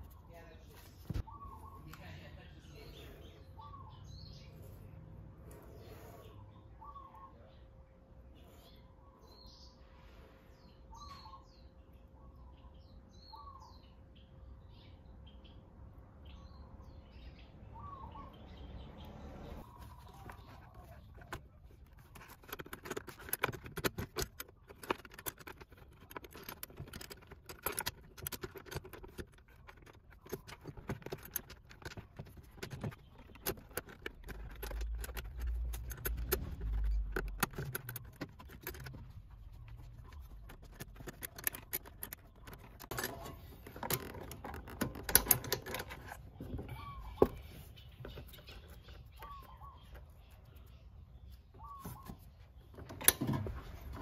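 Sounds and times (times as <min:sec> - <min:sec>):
bird chirps: 0:00.0 - 0:22.0, 0:28.4 - 0:53.0
hands handling brake hose: 0:19.6 - 0:50.1.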